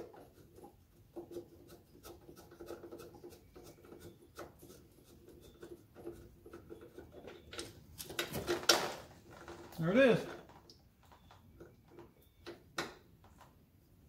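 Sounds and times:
fingers rubbing on metal: 0.0s - 7.5s.

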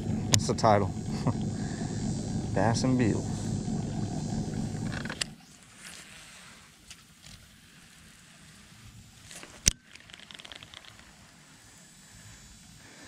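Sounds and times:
fishing reel ticking: 0.0s - 5.4s.

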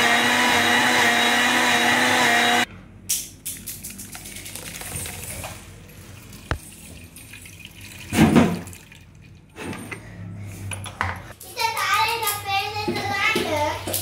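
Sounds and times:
liquid splashing and dripping: 3.4s - 9.6s.

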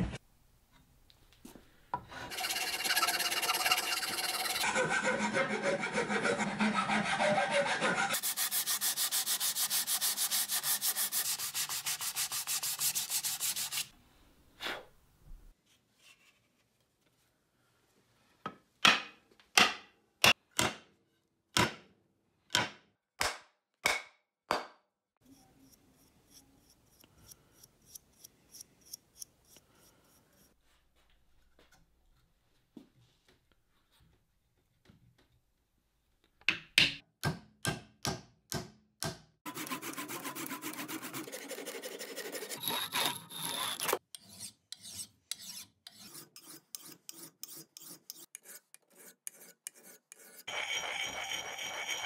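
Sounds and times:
sandpaper rasping on wood: 2.3s - 13.9s, 39.5s - 52.0s.

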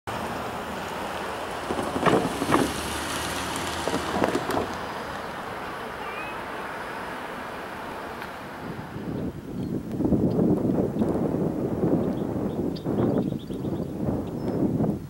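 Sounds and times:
crackling wind gusts: 0.1s - 15.0s
wind noise on microphone: 1.6s - 5.4s, 7.8s - 15.0s.

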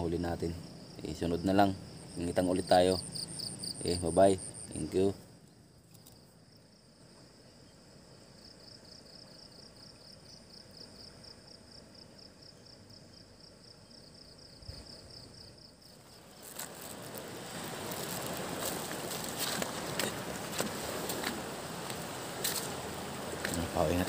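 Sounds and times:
background hiss: 0.0s - 24.0s
insect chirping: 0.0s - 24.0s
phone rustling on pebbles: 16.0s - 22.7s.

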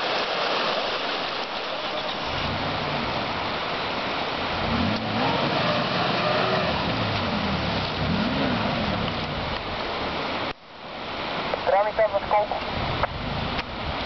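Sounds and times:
suv engine revving: 1.8s - 3.6s, 4.4s - 9.8s.

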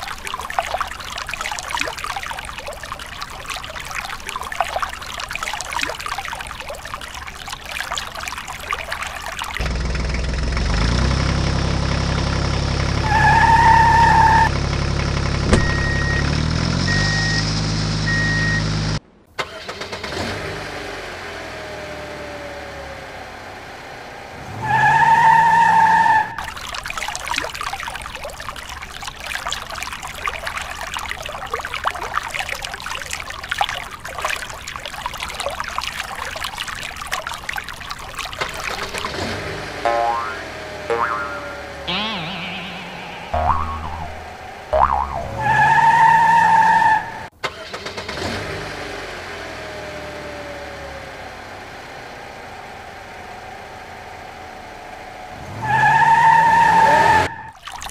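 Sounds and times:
vehicle engine running: 9.6s - 13.4s, 14.0s - 19.0s, 38.8s - 45.6s
short beeps: 15.6s - 16.3s, 16.9s - 17.5s, 18.1s - 18.7s.

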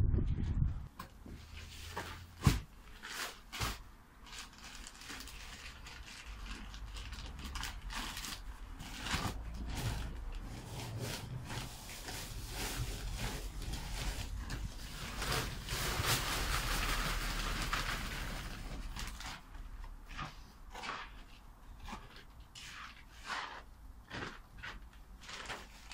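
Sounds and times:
hands scraping through soil: 20.0s - 25.8s.

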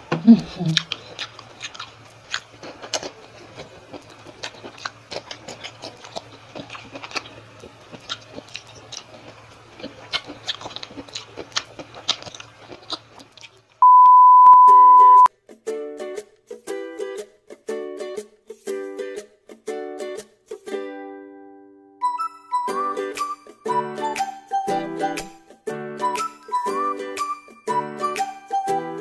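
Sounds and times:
crisp bites and chewing: 0.7s - 13.8s
loud steady beep: 13.8s - 15.3s
ukulele music: 14.7s - 29.0s.

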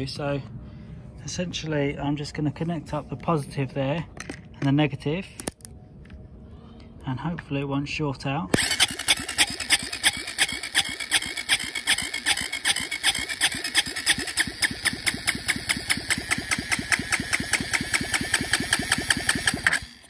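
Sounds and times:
starter motor cranking engine: 8.6s - 20.0s.

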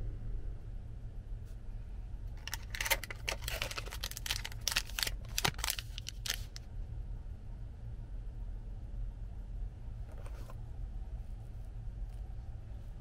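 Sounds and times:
steady low hum: 0.0s - 13.0s
paper wrapper crinkling: 2.4s - 6.6s.

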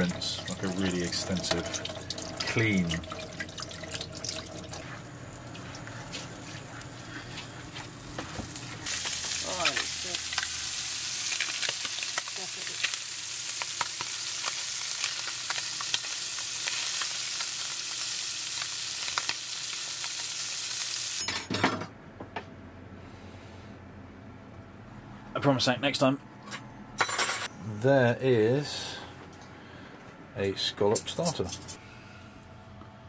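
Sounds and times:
scallops sizzling in a pan: 8.8s - 21.2s.

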